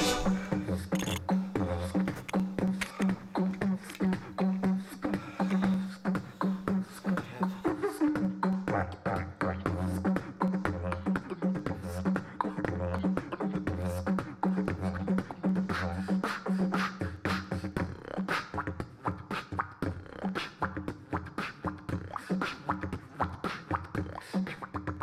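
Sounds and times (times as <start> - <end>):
beatboxing kick and snare: 0.0 - 25.0.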